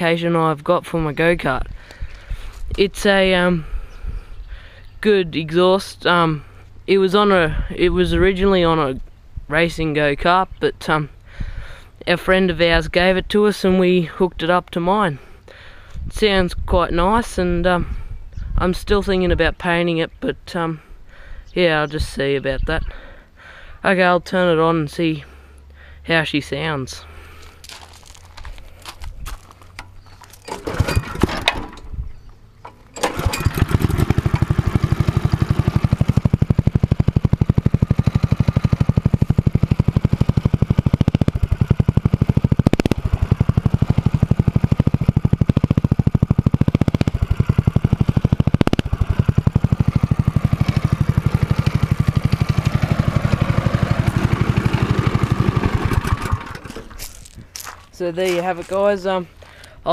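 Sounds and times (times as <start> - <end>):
engine rattling: 27.0 - 58.7
go-kart engine running: 29.3 - 31.8, 32.6 - 57.2.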